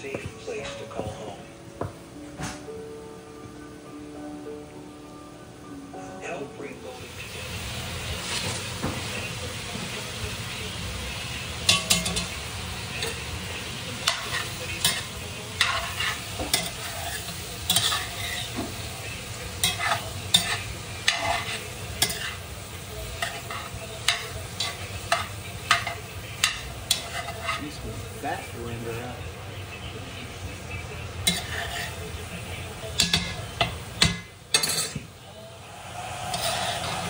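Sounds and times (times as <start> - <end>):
meat sizzling: 7.0 - 34.5, 35.3 - 37.0
metal spoon scraping pot: 36.2 - 37.0.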